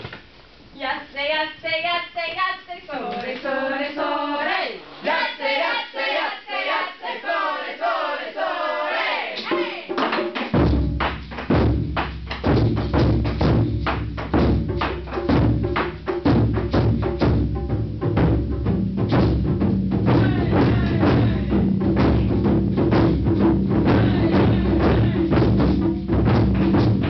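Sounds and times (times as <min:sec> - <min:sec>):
people singing: 0:03.0 - 0:10.0, 0:20.1 - 0:21.8, 0:23.7 - 0:25.8
large drum booming strokes: 0:10.5 - 0:27.0.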